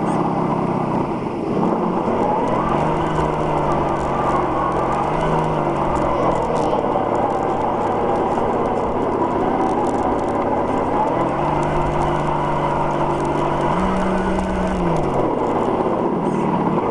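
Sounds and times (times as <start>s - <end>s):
electric motor whining: 1.6s - 16.9s
faint clicks: 2.1s - 16.5s.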